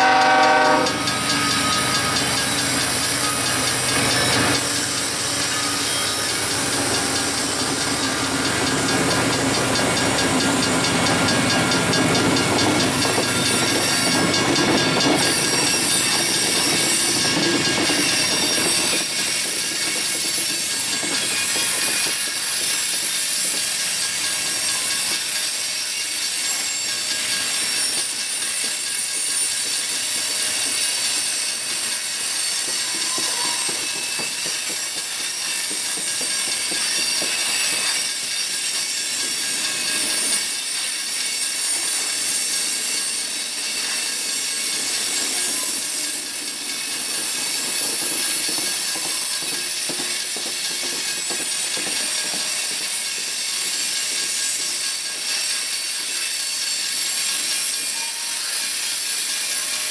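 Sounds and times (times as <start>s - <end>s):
diesel locomotive rumbling: 0.0s - 18.2s
train cars rolling on rails: 0.0s - 59.9s.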